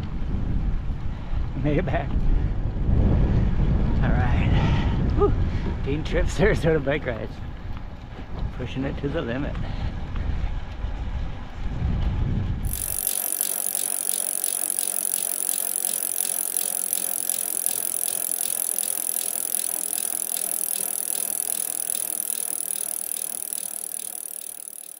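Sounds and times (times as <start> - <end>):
bicycle freehub ticking: 12.7 - 24.9.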